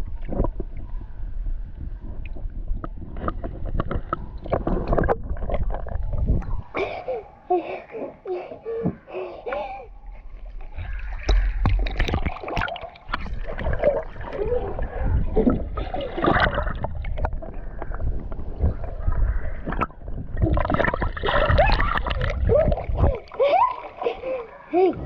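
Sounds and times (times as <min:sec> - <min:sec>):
muffled underwater rumble: 0:00.0 - 0:06.8, 0:09.9 - 0:23.4
pool water splashing: 0:10.2 - 0:25.0
child laughing: 0:14.4 - 0:14.9, 0:21.5 - 0:25.0.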